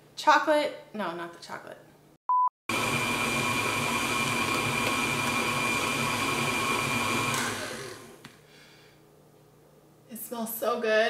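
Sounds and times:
stand mixer motor whine: 2.7 - 8.2.

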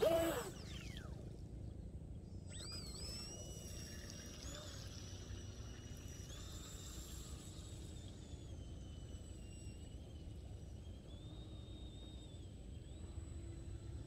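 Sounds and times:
electric motor whining: 0.0 - 1.2.

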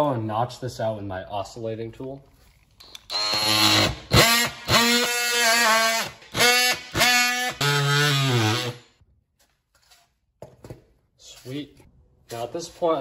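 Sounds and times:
oscillating multi-tool cutting: 2.9 - 8.8.

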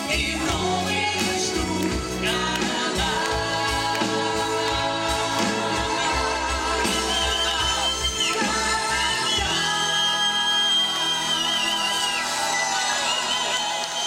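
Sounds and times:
person singing: 0.0 - 11.6
pop band playing: 0.0 - 14.0.

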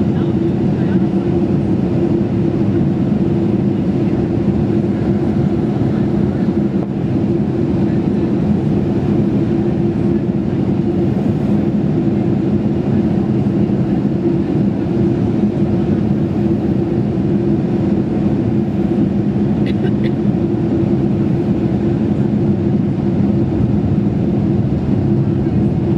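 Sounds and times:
airplane cabin engine drone: 0.0 - 25.9.

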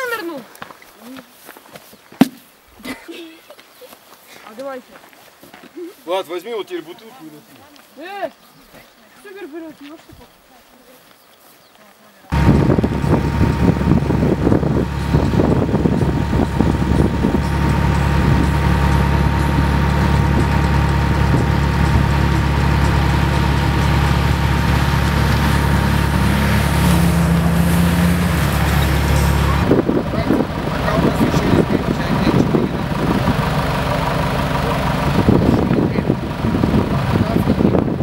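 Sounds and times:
suv engine running: 12.3 - 38.0.

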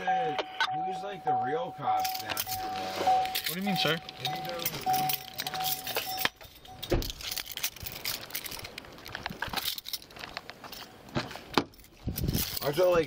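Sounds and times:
pulsing electronic chime: 0.0 - 6.9
gear and keys jingling: 2.0 - 13.0.

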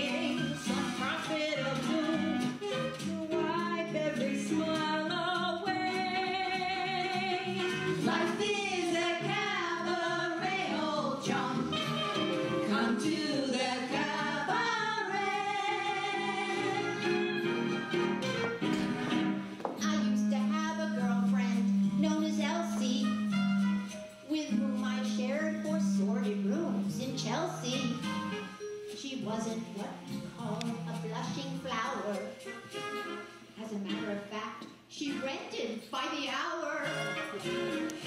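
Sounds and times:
musical accompaniment: 0.0 - 36.0, 36.7 - 38.0
voices singing with vibrato: 5.6 - 17.9.

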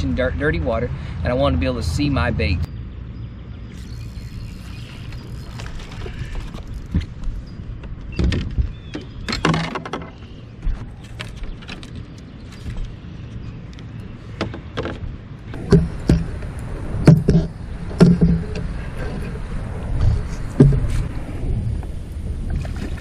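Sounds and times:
low wind rumble: 0.0 - 23.0
knocks and thumps on boat deck: 7.8 - 11.9, 15.6 - 16.4, 17.0 - 18.7, 20.0 - 21.1.

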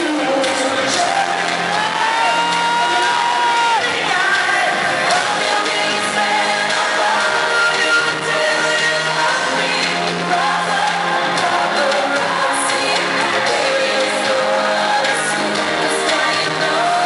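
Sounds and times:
live pop music with singer: 0.0 - 17.0
audience shouts: 0.7 - 4.9.

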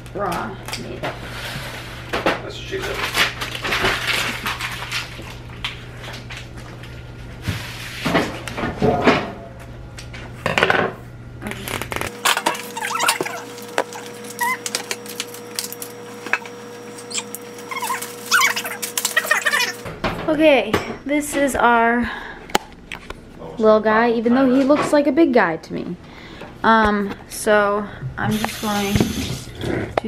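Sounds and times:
plastic wrapper crinkling and tearing: 2.8 - 6.5, 11.4 - 16.2, 16.8 - 19.8
kitchen shears snipping: 11.6 - 19.8.

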